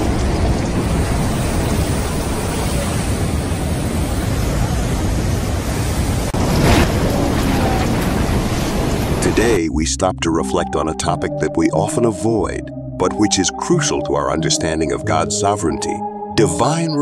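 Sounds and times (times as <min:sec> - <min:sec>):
heavy surf breaking: 0:00.0 - 0:09.6
storm wind blowing on microphone: 0:00.0 - 0:09.6.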